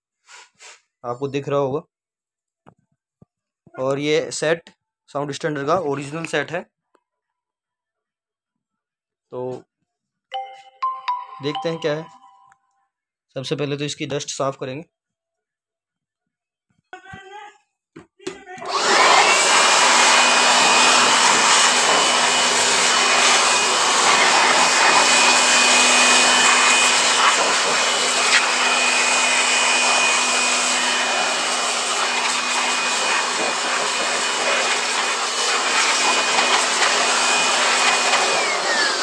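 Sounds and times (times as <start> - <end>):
electric air blower whining: 18.6 - 39.0.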